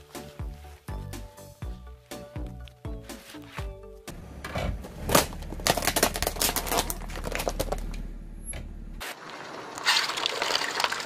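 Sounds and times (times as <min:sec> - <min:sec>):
tyre crushing plastic crackling: 0:04.9 - 0:08.0
tyre crushing paper cups: 0:05.0 - 0:07.9.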